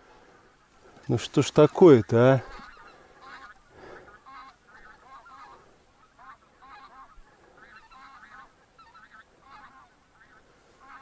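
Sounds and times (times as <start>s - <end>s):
geese honking: 0.5s - 11.0s.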